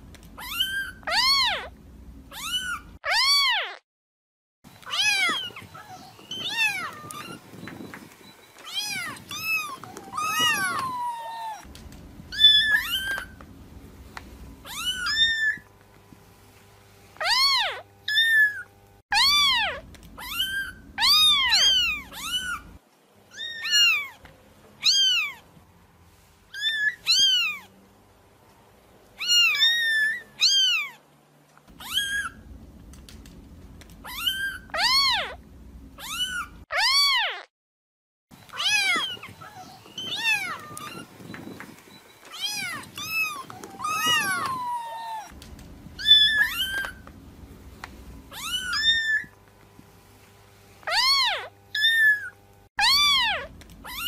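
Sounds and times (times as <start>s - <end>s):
kitten meowing: 0.4s - 1.7s, 2.3s - 3.8s, 4.8s - 7.4s, 8.6s - 11.6s, 12.3s - 13.3s, 14.6s - 15.7s, 17.2s - 22.7s, 23.3s - 24.2s, 24.8s - 25.4s, 26.5s - 27.7s, 29.2s - 31.0s, 31.8s - 32.4s, 34.0s - 35.4s, 36.0s - 37.5s, 38.5s - 41.1s, 42.3s - 45.4s, 46.0s - 47.0s, 48.3s - 49.3s, 50.9s - 54.0s.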